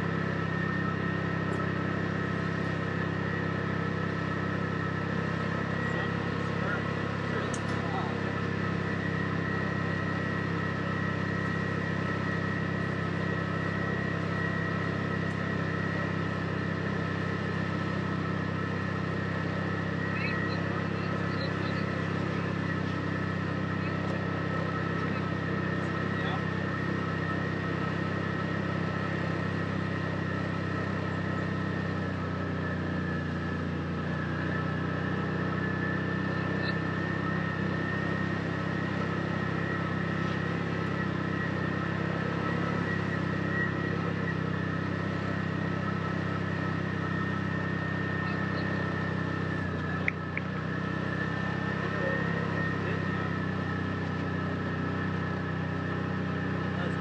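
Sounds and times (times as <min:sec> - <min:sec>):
high-pitched whine: 0:00.0 - 0:57.0
utility vehicle engine running: 0:00.0 - 0:57.0.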